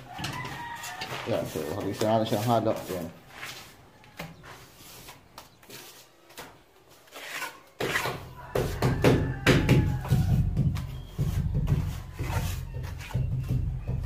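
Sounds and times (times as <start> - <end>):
trowel scraping mortar: 0.4 - 3.8, 6.9 - 8.4, 9.9 - 13.6.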